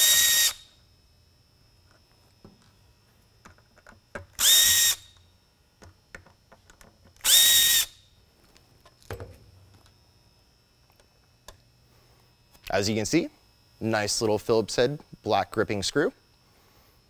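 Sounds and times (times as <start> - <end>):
cordless drill whining: 0.0 - 0.8, 4.4 - 5.2, 7.2 - 8.1.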